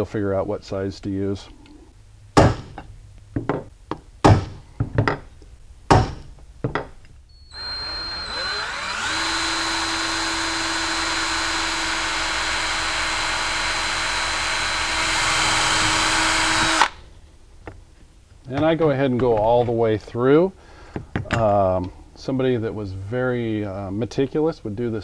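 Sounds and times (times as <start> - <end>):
electric drill whining: 7.3 - 17.1.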